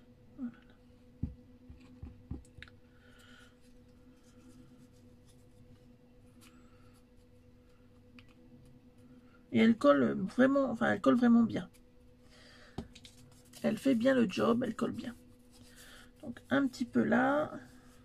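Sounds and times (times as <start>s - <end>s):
steady low hum: 0.0s - 18.0s
paper rustling: 12.8s - 16.8s.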